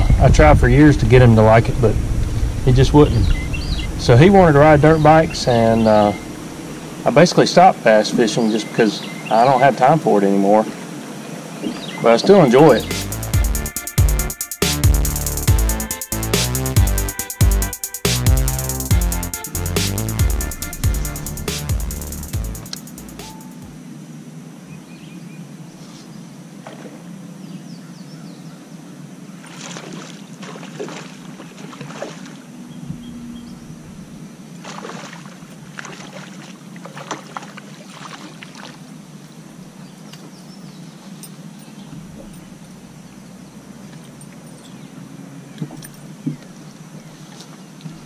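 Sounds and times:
steady low hum: 0:00.0 - 0:08.3, 0:12.4 - 0:24.7, 0:31.2 - 0:35.9
water sloshing against boat hull: 0:08.0 - 0:12.6, 0:29.4 - 0:33.1, 0:34.6 - 0:39.4, 0:45.5 - 0:48.0
fish splashing: 0:29.4 - 0:32.5, 0:34.6 - 0:39.0.

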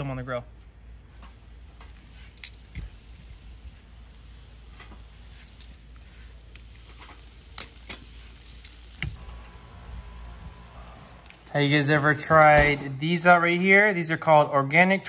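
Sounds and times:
food sizzling on grill: 0:01.2 - 0:11.6
metal tongs clicking on grate: 0:02.4 - 0:02.9, 0:06.5 - 0:09.2.

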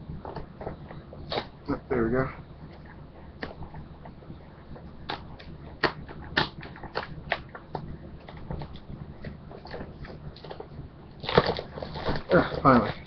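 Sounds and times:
packaging crinkling and tearing: 0:11.2 - 0:13.0.

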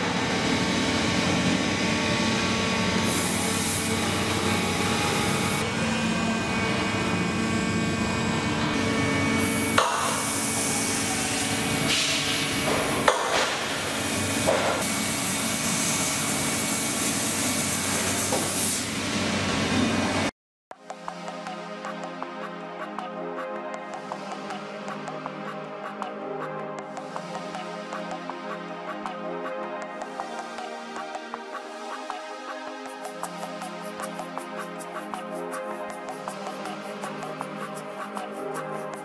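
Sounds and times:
bending machine humming: 0:00.0 - 0:18.2.

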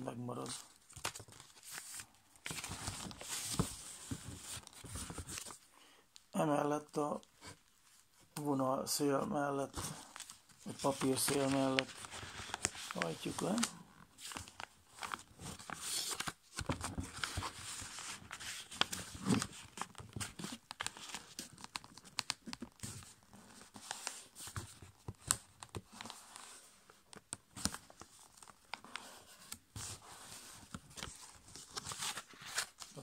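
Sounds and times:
paper crinkling and scraping: 0:00.4 - 0:05.6, 0:09.7 - 0:33.0.

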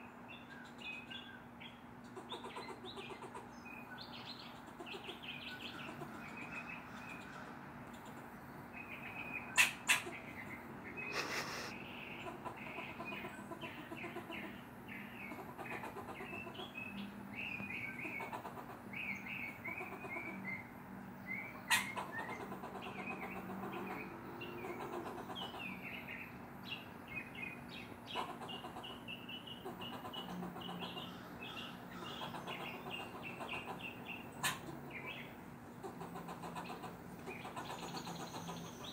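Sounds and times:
squirrel barking: 0:02.0 - 0:07.3, 0:07.9 - 0:20.8, 0:21.4 - 0:38.9.

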